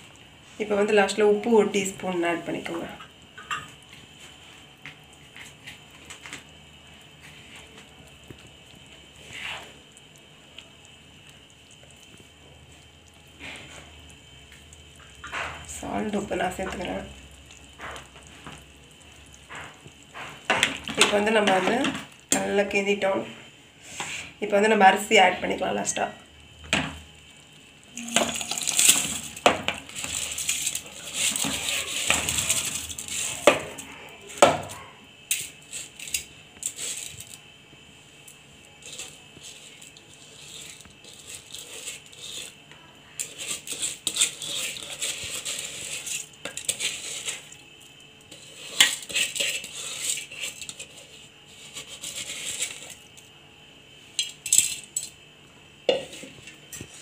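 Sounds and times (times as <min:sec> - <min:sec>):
rice grains rattling into metal pot: 0:27.9 - 0:33.6.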